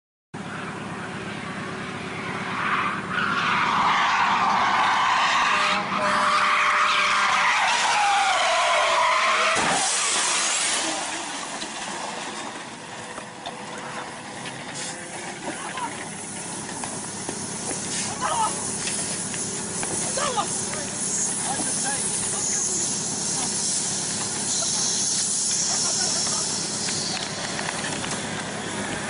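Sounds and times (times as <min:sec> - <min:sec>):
car engine running: 0:00.4 - 0:05.3, 0:07.5 - 0:29.0
car crash: 0:02.5 - 0:20.3
tyres squealing: 0:02.6 - 0:27.9.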